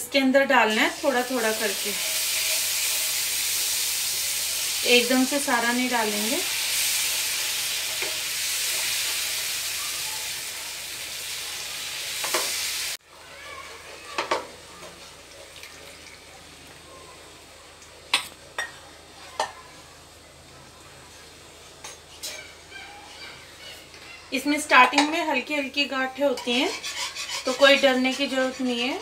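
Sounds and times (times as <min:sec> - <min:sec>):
milk sizzling in a frying pan: 0:00.4 - 0:29.0
spatula stirring sauce: 0:26.4 - 0:28.4.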